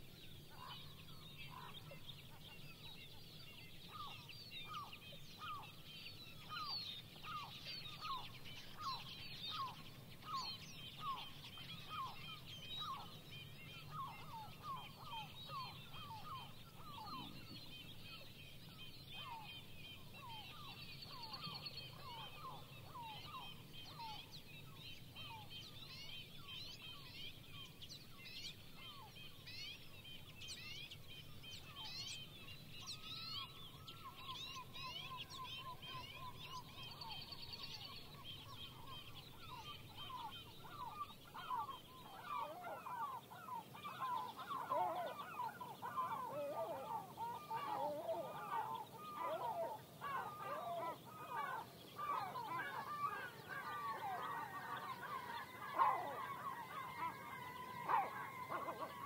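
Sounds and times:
songbirds chirping: 0.0 - 59.0
bird trill: 19.1 - 59.0
gulls calling: 33.1 - 59.0.

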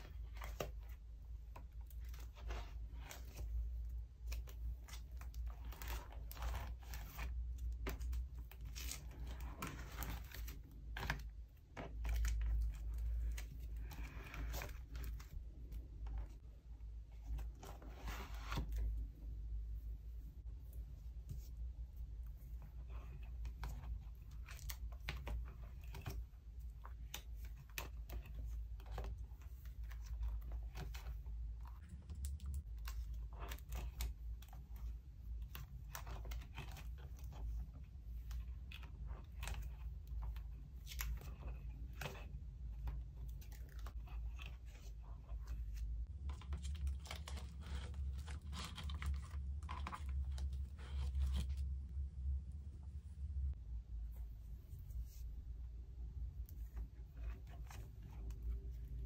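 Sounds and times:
plastic pages crinkling: 0.0 - 16.4, 22.9 - 51.7
low hum: 48.9 - 59.0.

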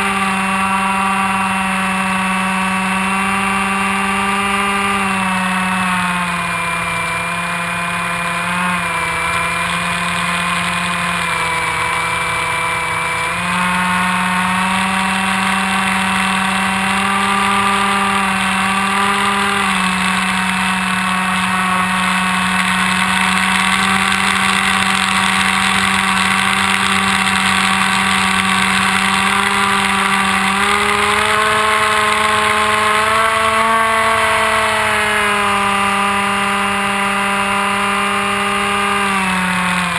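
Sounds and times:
electric motor and propeller: 0.0 - 39.9.

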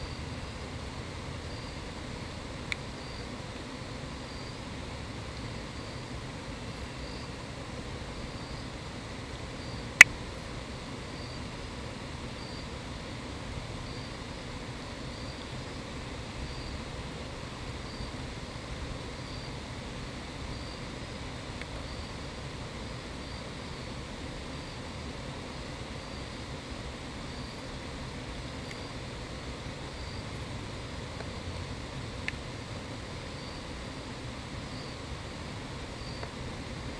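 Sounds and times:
faint high insect chirps: 0.0 - 36.9.

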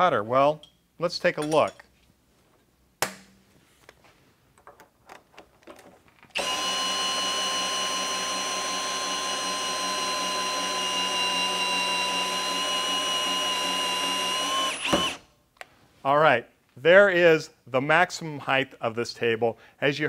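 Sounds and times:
cordless drill whining: 6.3 - 15.3.

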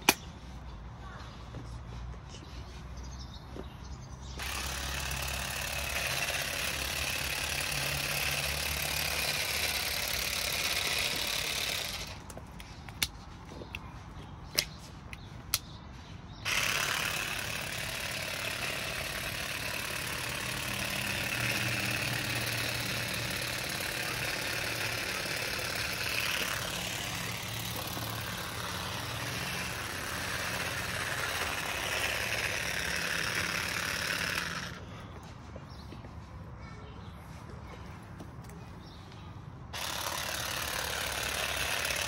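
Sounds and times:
cordless shrub shears buzzing: 4.2 - 13.2, 16.4 - 35.0, 39.7 - 42.0
sharp clicks: 14.5 - 15.8.

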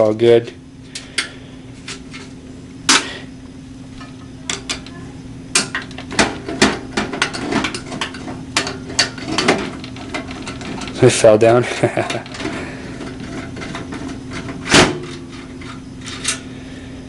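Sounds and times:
low steady hum: 0.0 - 17.0
metal clicks and knocks: 5.6 - 11.1
drive and screw clattering: 5.6 - 16.4.

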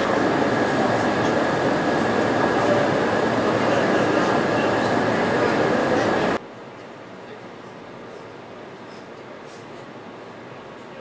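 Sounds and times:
train wheels rumbling on rails: 0.0 - 6.4.

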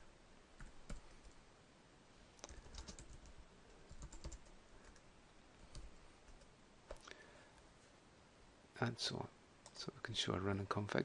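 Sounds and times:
faint keyboard typing: 0.6 - 1.4, 2.4 - 7.2, 9.6 - 9.9.

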